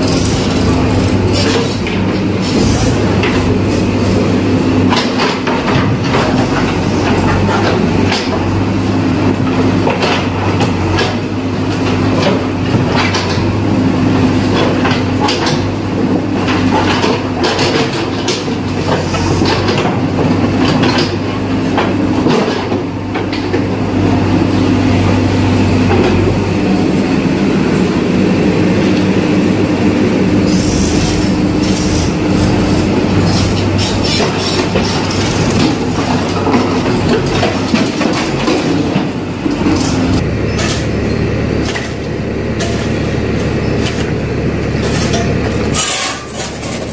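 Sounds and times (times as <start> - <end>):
diesel engine under load: 0.0 - 46.9
bucket scraping concrete rubble: 44.8 - 46.9.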